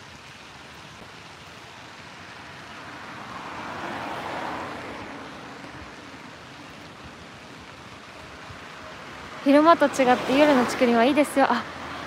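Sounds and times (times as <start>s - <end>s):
car driving past: 2.4s - 6.8s.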